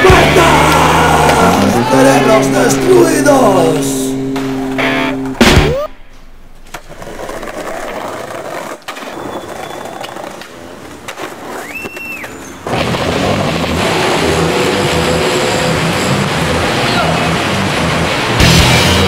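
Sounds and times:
loud noisy low pulsing sound: 0.0 - 6.6
skateboard wheels rolling on paving: 6.6 - 14.5
skateboard clacks: 6.7 - 13.7.

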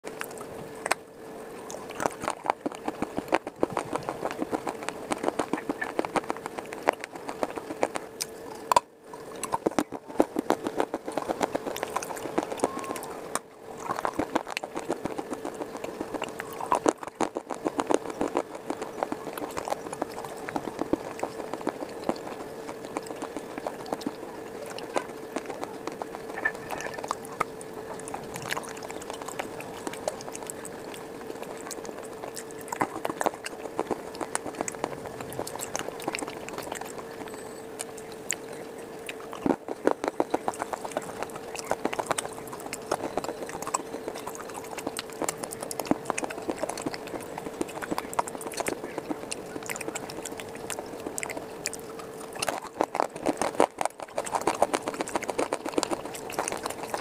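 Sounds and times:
crunching and chewing clay: 0.0 - 57.0
faint steady hum: 0.0 - 57.0.

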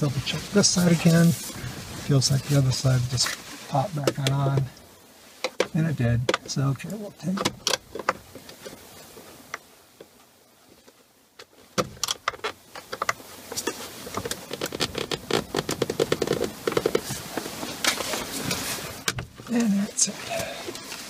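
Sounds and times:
light clicks scrapes and rubbing: 10.8 - 19.7.

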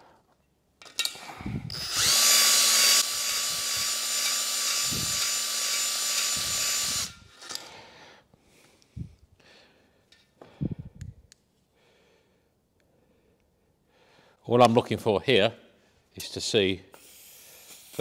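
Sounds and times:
cordless drill spinning a hone: 1.4 - 7.3.

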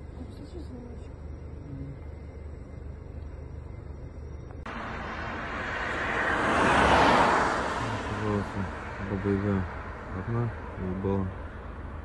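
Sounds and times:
low steady rumble: 0.0 - 6.4
car driving past: 4.7 - 12.0.

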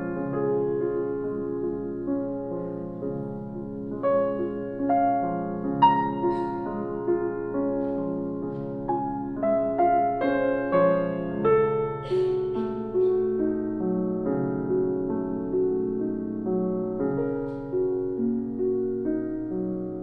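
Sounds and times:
slow piano music: 0.0 - 20.0.

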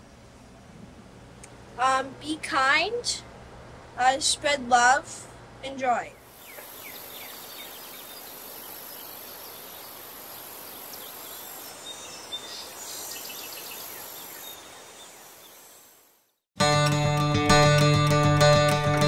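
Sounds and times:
steady background hiss: 0.0 - 16.4
bird chirps: 6.2 - 15.7
high insect-like tone: 6.3 - 16.2.

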